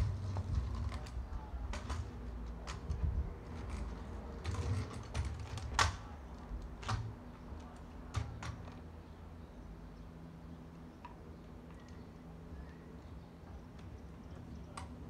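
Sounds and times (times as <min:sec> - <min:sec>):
kick scooter clattering: 0:00.0 - 0:08.8
wheels rumbling: 0:00.0 - 0:15.0.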